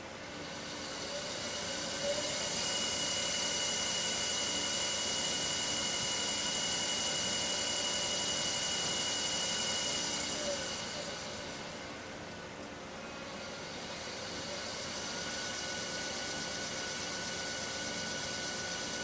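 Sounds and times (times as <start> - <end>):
motor whining: 0.4 - 12.0
hiss: 0.5 - 11.9.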